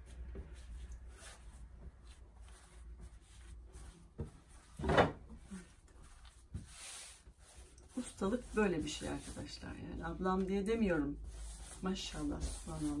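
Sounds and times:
hands rubbing dough: 0.0 - 13.0.

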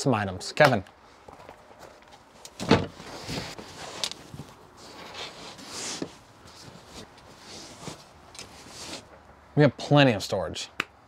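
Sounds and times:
shuffling steps: 1.0 - 9.2
pillows and blankets rustling: 2.6 - 9.1.

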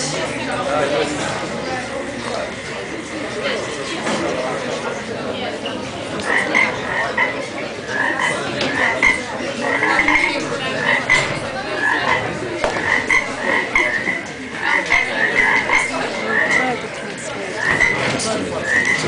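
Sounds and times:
frogs croaking: 0.6 - 19.0.

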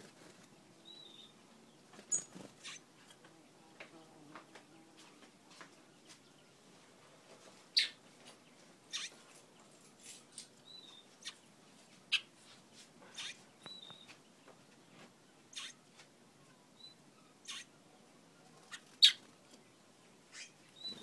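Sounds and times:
finch chip calls: 13.1 - 14.2, 15.5 - 15.8, 17.4 - 17.7.

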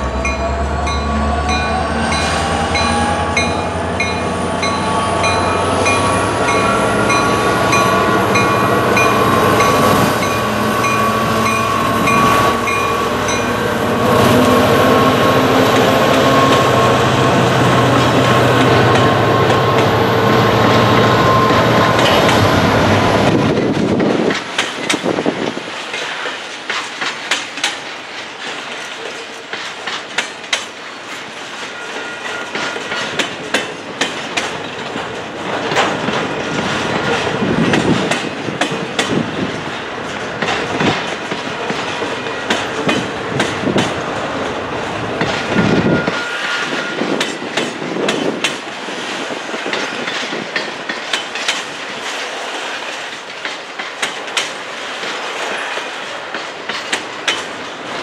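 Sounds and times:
freight train wheels clacking: 0.0 - 58.0
wheel squeal: 45.6 - 47.2.

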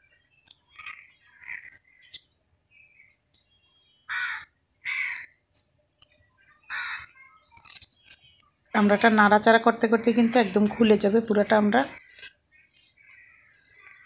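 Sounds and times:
small birds chirping: 0.0 - 14.0
crow cawing: 4.1 - 5.3, 6.7 - 7.2.

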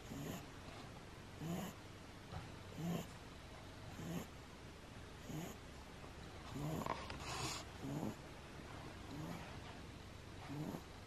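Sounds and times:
puppy snoring softly: 0.0 - 0.5, 1.4 - 1.8, 2.7 - 3.2, 3.9 - 4.3, 5.2 - 5.6, 6.5 - 8.2, 9.1 - 9.7, 10.4 - 11.0.

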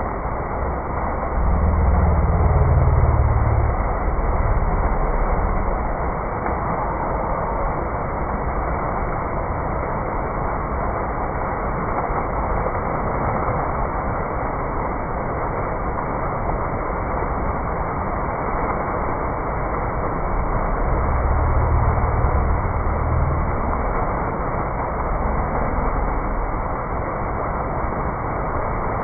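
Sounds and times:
low rumble: 0.0 - 9.0, 18.4 - 28.4
fountain water splashing into basin: 0.0 - 29.0.

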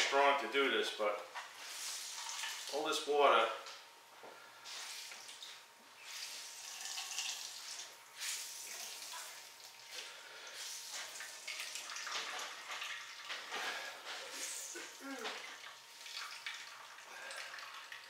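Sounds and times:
water trickling into metal bowl: 6.6 - 7.5, 15.4 - 18.0.

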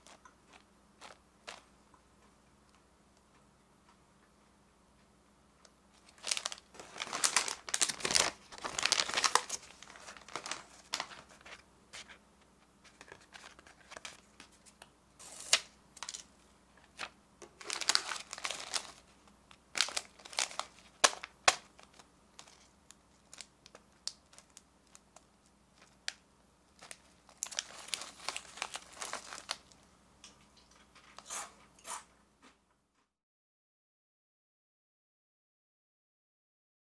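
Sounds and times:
plastic wrappers crinkling: 0.0 - 1.7, 6.0 - 12.2, 12.8 - 29.8.

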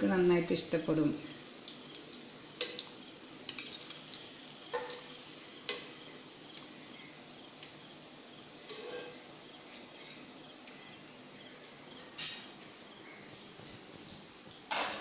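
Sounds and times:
oil sizzling in a frying pan: 0.0 - 14.9
metal spoon clinking on pan: 8.6 - 9.2.

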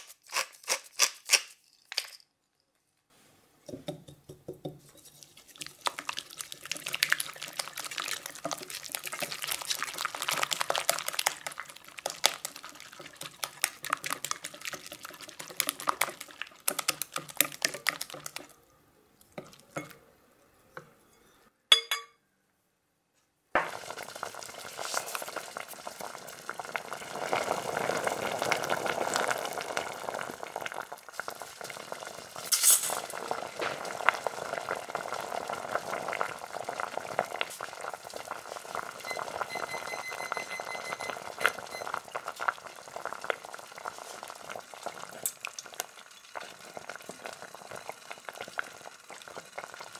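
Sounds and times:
pot of water boiling: 3.7 - 18.6, 23.6 - 49.9
whisk clicking and scraping in bowl: 4.6 - 18.5.

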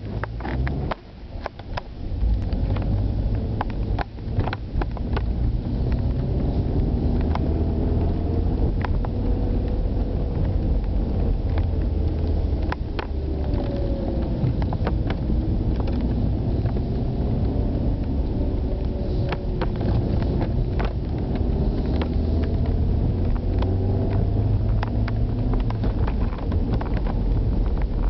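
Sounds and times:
low road rumble: 0.0 - 28.0
car engine revving: 2.0 - 28.0
clicks and knocks over broken asphalt: 18.0 - 28.0.

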